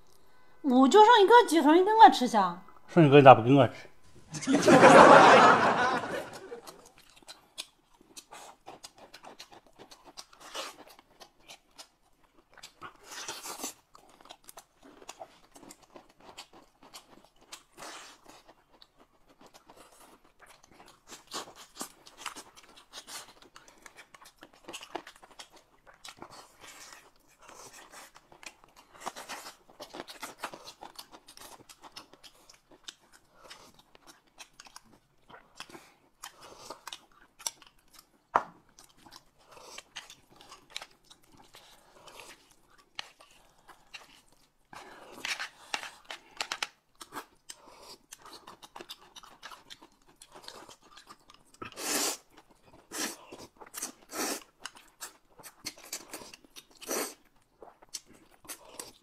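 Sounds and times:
chewing chicken: 5.6 - 59.0.

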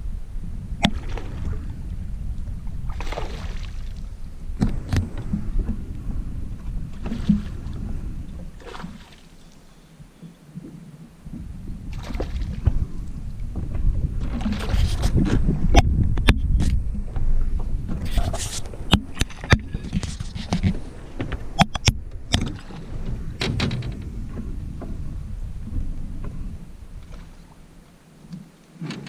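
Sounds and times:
wind rumble on microphone: 0.0 - 29.0
water lapping against boat hull: 0.5 - 29.0
sharp knocks on boat: 7.0 - 7.7, 18.8 - 26.4.

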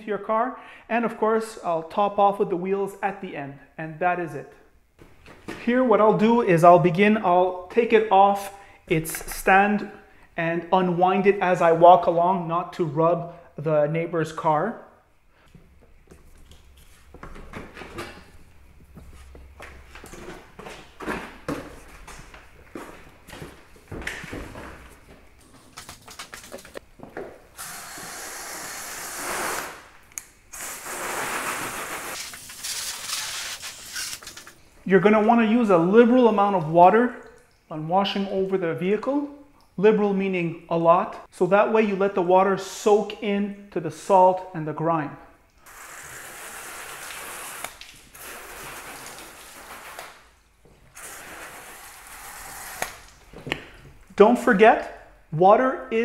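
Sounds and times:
hose water spraying onto car: 27.6 - 29.8
hose water spattering on car: 45.7 - 50.2.

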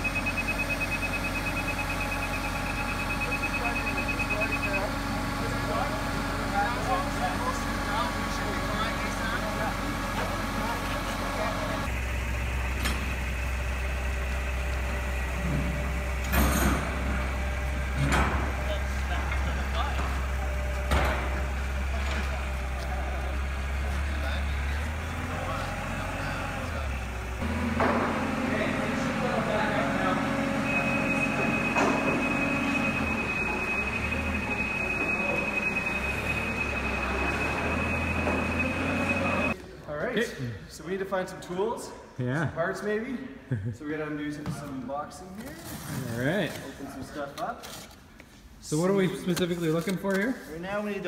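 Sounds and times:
forklift engine idling: 0.0 - 39.6.

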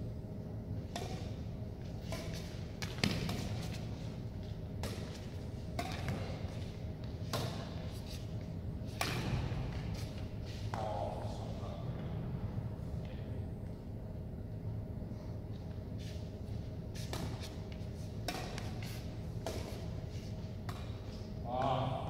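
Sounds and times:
rackets hitting shuttlecock: 0.8 - 3.9, 4.8 - 7.9, 8.9 - 9.8, 18.2 - 19.9.

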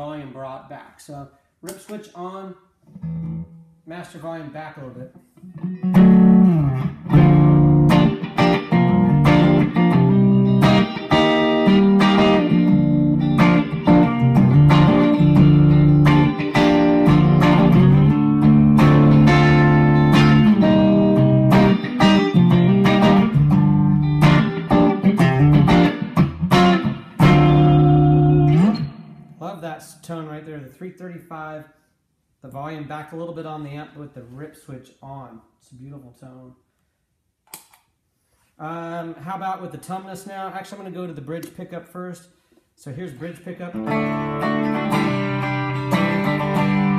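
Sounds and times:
electric guitar chords and notes: 3.0 - 3.7, 5.4 - 29.4, 43.7 - 46.9.

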